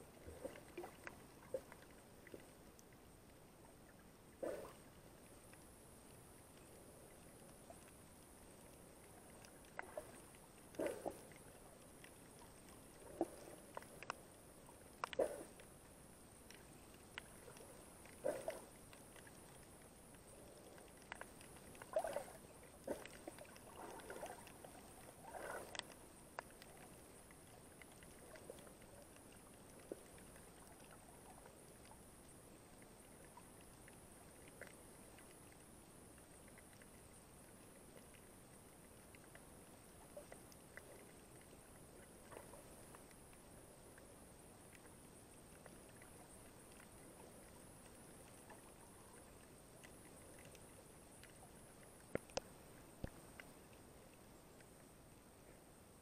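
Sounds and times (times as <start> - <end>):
underwater hiss: 25.2 - 25.8.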